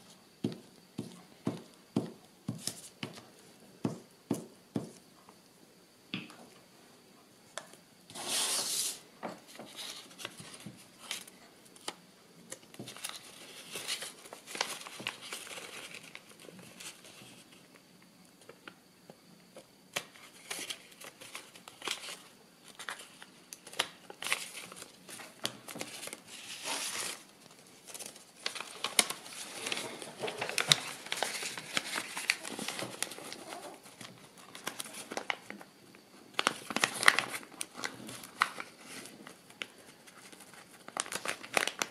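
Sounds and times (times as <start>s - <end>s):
paper rustling and crinkling: 8.1s - 17.6s, 19.9s - 35.7s, 36.3s - 41.9s.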